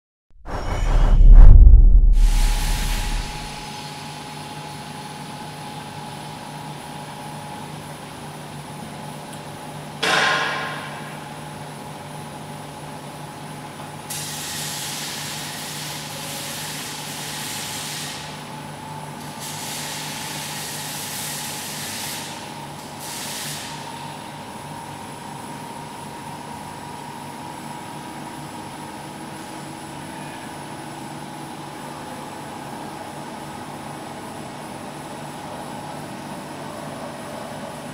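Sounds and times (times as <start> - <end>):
machine hum with faint whine: 0.5 - 3.6.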